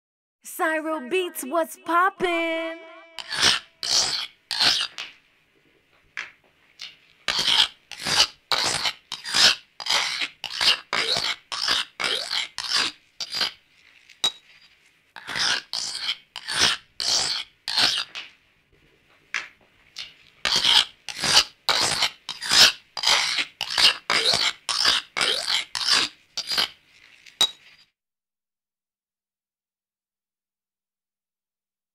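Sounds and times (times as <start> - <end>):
knife sharpening strokes: 3.2 - 5.0, 6.8 - 13.6, 14.2 - 18.2, 20.0 - 26.8, 27.4 - 27.8.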